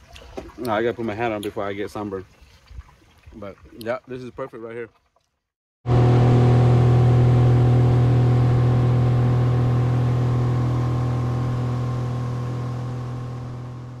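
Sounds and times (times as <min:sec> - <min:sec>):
boat wake rushing: 0:05.9 - 0:14.0
outboard motor running: 0:05.9 - 0:14.0.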